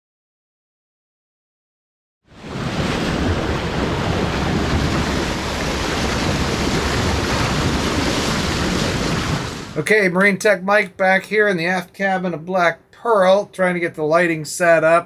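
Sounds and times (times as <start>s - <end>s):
water rushing and splashing off bow: 2.3s - 9.9s
wind buffeting microphone: 2.4s - 9.8s.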